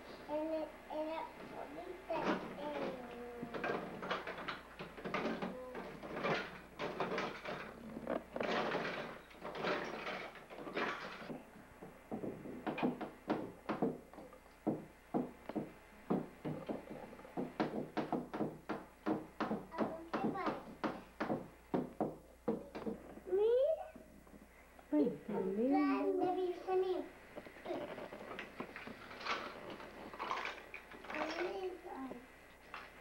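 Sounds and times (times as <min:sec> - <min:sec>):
plastic toys clattering: 0:02.1 - 0:11.4, 0:27.6 - 0:31.8.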